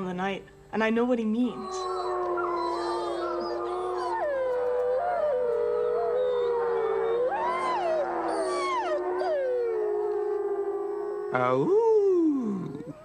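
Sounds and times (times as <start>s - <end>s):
wolves howling in chorus: 1.5s - 11.7s.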